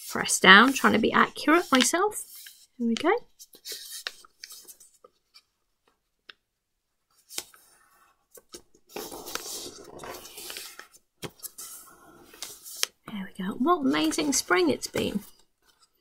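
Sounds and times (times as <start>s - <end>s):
paper rubbing and sliding: 0.0s - 2.7s, 3.4s - 4.9s, 8.9s - 12.9s
paper rustling and tapping: 0.5s - 6.4s.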